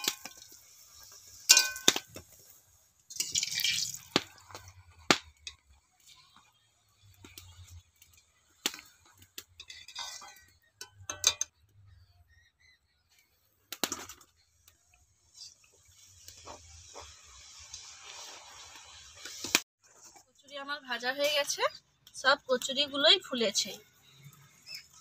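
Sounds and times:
food sizzling in hot oil: 0.0s - 11.4s, 14.8s - 19.7s
wire skimmer clinking on metal pan: 1.5s - 2.1s, 9.6s - 11.5s.

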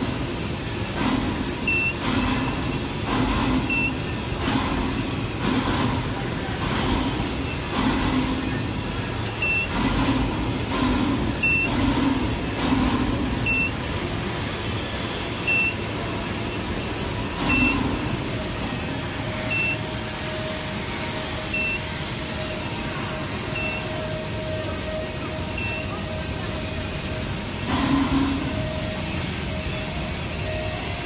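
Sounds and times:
workshop machinery noise: 0.0s - 31.0s
high electronic beep: 1.6s - 2.5s, 3.6s - 4.1s, 9.3s - 9.8s, 11.4s - 11.8s, 13.4s - 13.8s, 15.4s - 18.1s, 19.5s - 19.9s, 21.4s - 22.0s, 23.3s - 27.2s.

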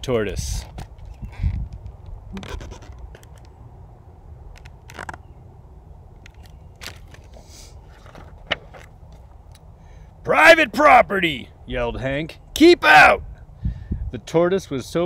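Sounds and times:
book handling clicks and rustles: 4.5s - 5.3s, 6.2s - 9.6s
page turning click: 8.0s - 9.0s.

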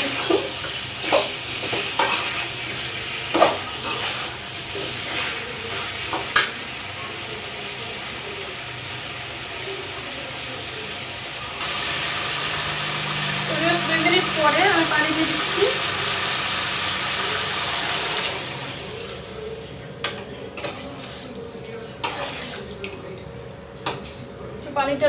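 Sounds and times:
curry sizzling: 0.0s - 25.0s
metal spatula scraping a pot: 3.4s - 5.4s, 20.6s - 21.4s, 22.0s - 22.8s.

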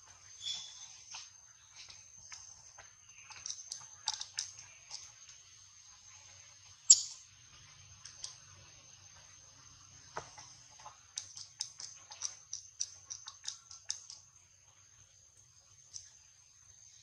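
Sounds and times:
soft clicks of grooming monkeys: 0.7s - 5.4s, 10.4s - 14.3s.

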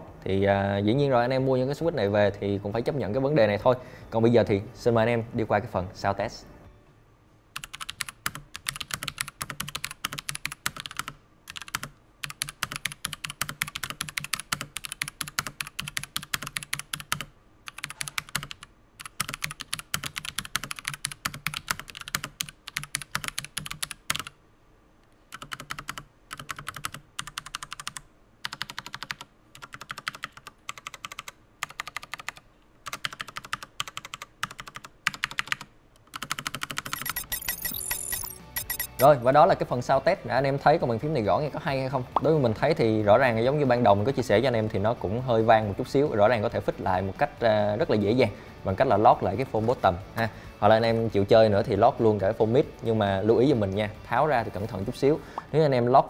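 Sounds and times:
fast mechanical keyboard typing: 7.6s - 24.4s, 25.3s - 39.1s.

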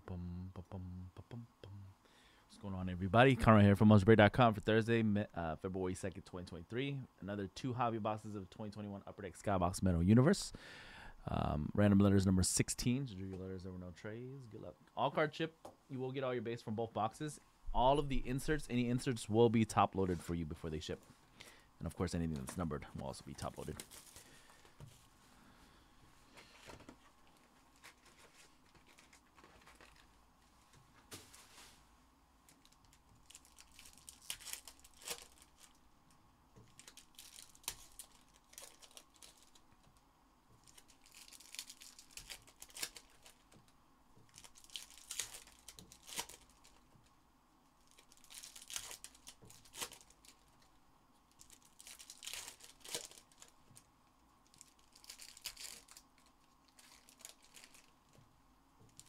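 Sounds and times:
foil packs torn and crinkled: 32.5s - 35.8s, 36.7s - 39.6s, 40.6s - 43.6s, 44.3s - 46.8s, 47.8s - 50.6s, 51.3s - 57.9s.

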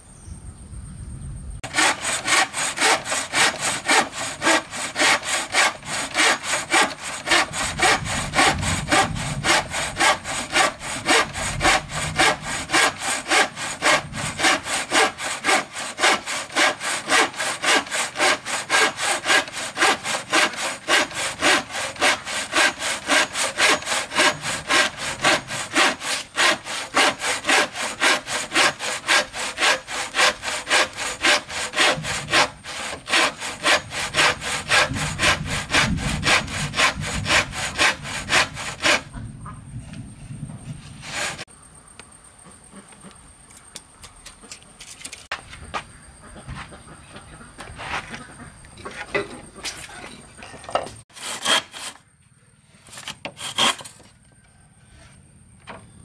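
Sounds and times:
hand saw cutting wood: 1.6s - 39.2s, 41.0s - 41.5s, 50.8s - 52.0s, 52.9s - 54.1s.

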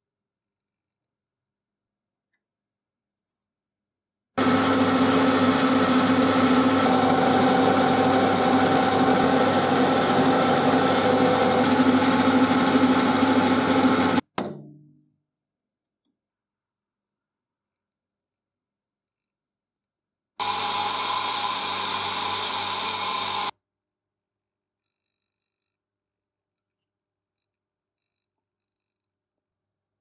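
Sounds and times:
lathe cutting brass: 4.4s - 14.2s, 20.4s - 23.5s
metal lathe humming: 4.4s - 14.2s, 20.4s - 23.5s.

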